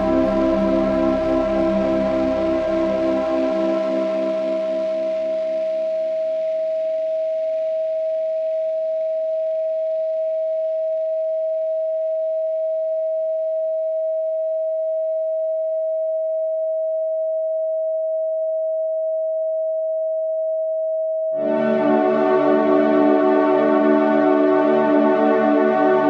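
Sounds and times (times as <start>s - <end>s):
soft ambient backing: 0.0s - 6.2s, 21.4s - 26.0s
steady sine tone: 0.0s - 16.6s, 21.4s - 26.0s.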